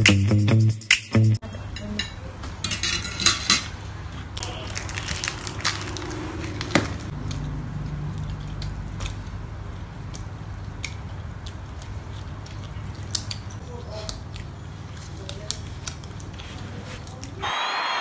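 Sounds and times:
forks clicking and scraping on plates: 1.8 - 3.8.

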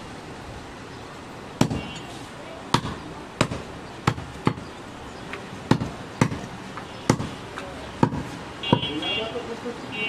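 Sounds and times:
cleaver chopping meat on wood: 1.6 - 1.9, 2.7 - 4.7, 5.7 - 6.5, 7.1 - 7.4, 8.0 - 8.9.

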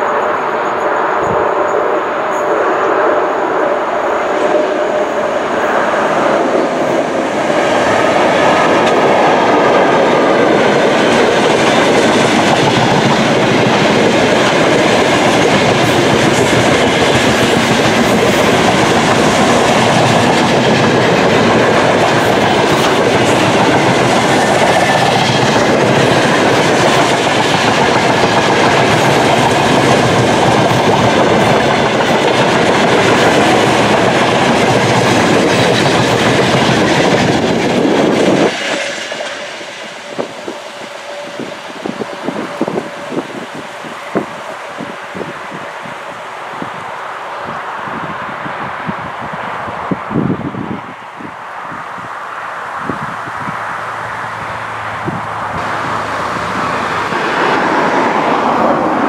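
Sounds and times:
steel wheels on rails: 0.0 - 48.1, 52.8 - 59.0.

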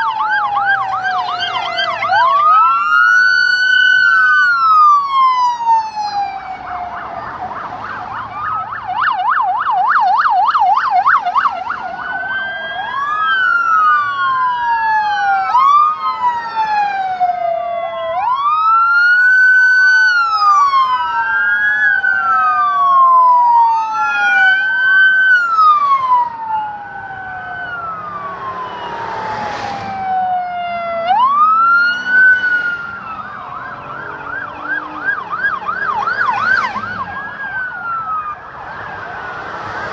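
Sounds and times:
police sirens: 0.0 - 39.9
car passing close: 27.0 - 39.9.

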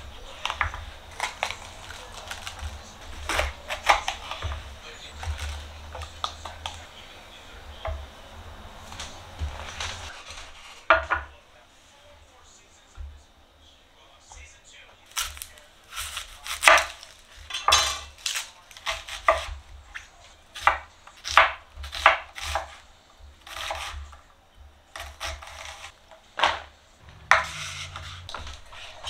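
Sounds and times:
knife chopping on wooden board: 0.4 - 6.9, 15.1 - 24.2, 24.9 - 29.0
scraping rustling noise: 27.0 - 29.0.

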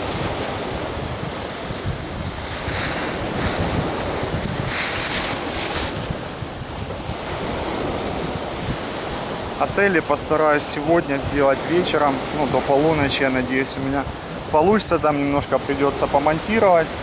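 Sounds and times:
waves washing up gravel beach: 0.0 - 10.0
wind buffeting microphone: 0.0 - 13.1.

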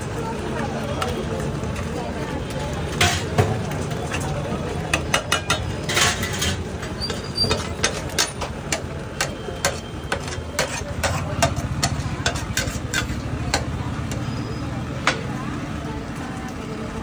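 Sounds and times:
spatula scraping iron griddle: 2.9 - 14.5.

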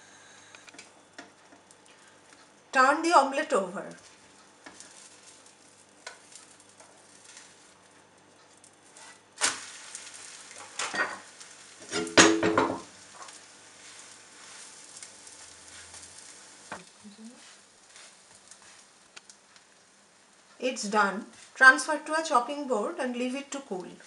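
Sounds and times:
omelette sizzling in oil: 0.0 - 24.0
spatula knocking and scraping pan: 10.6 - 13.4.

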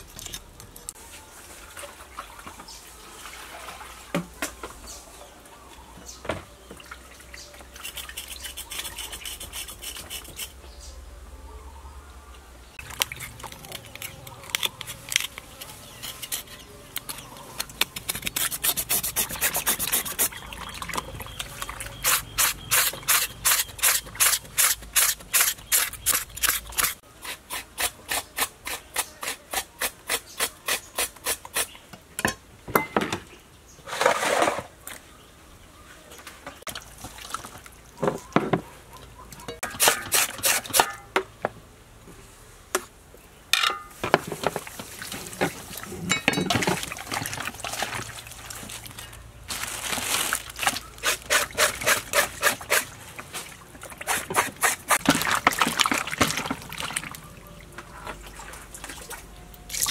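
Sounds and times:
water splashes: 44.6 - 49.1, 50.2 - 59.9.

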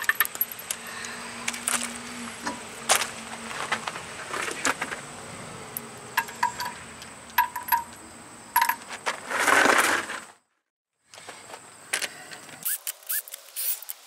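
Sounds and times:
metal lug nuts clinking: 5.7 - 8.9
loud scuffing: 8.8 - 10.4.

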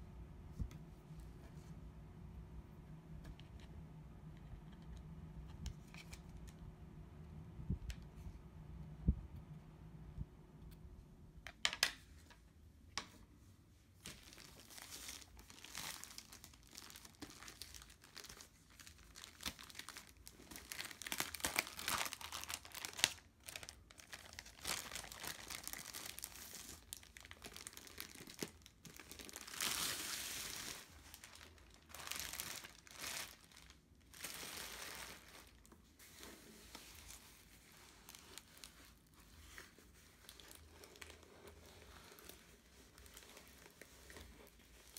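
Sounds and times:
plastic crinkling and rustling: 14.0 - 44.9.

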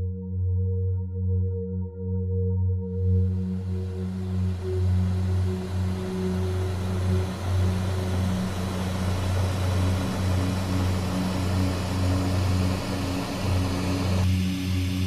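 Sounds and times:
low sustained drone music: 0.0 - 15.0
hiss: 4.0 - 15.0.

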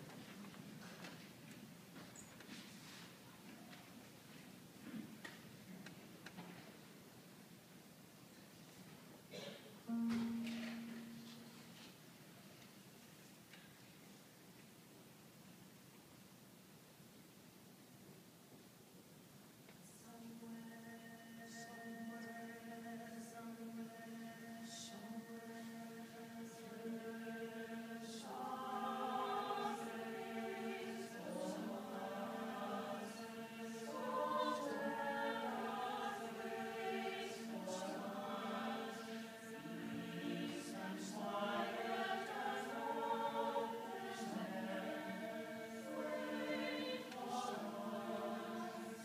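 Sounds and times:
choir singing in harmony: 20.0 - 49.0.

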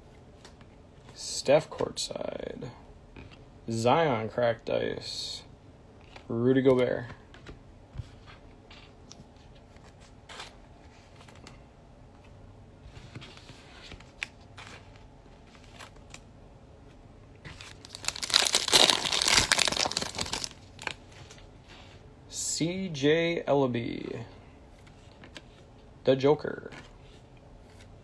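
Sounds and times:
foil wrapper crinkling: 17.6 - 21.0.

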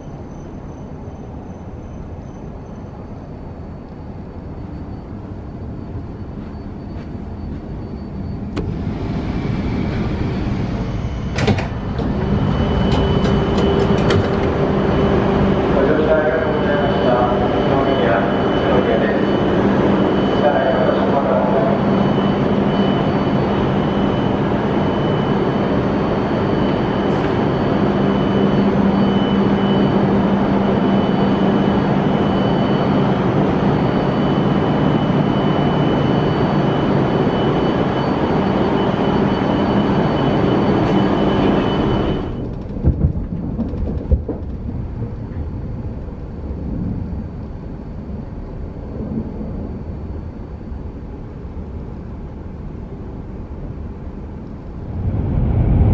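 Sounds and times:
high constant whine: 0.0 - 55.9
train cabin rumble: 4.6 - 18.3, 40.8 - 49.7
steady hum: 8.3 - 43.3, 44.1 - 55.9.

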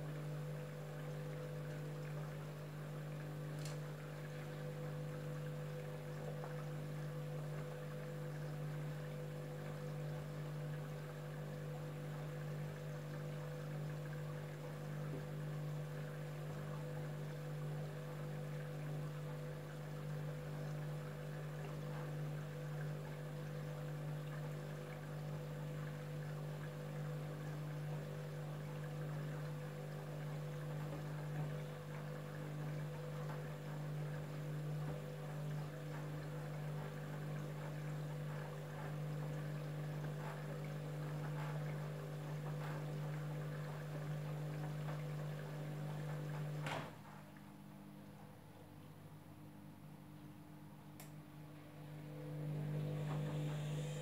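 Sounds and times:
washing machine hum: 0.0 - 54.0
water swishing in drum: 0.0 - 54.0.

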